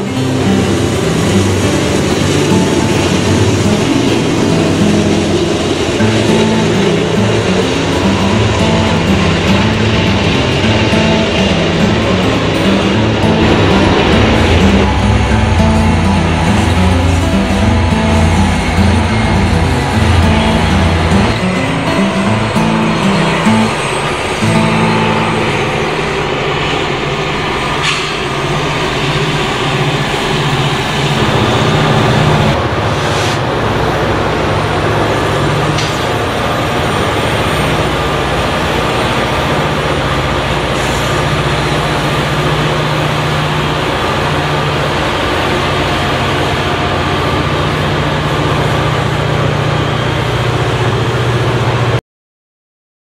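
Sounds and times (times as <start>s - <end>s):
diesel locomotive engine drone: 0.0s - 52.0s
train rumble: 0.0s - 52.0s.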